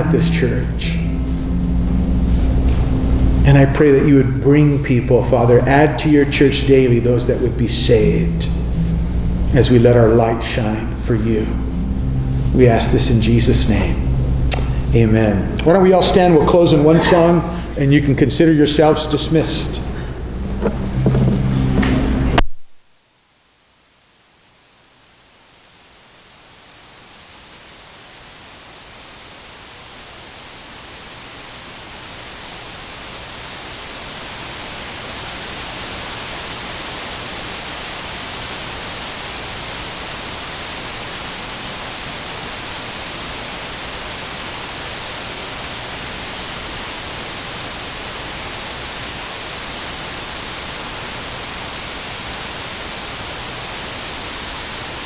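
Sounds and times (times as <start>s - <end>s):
electronic static hiss: 0.0s - 55.0s.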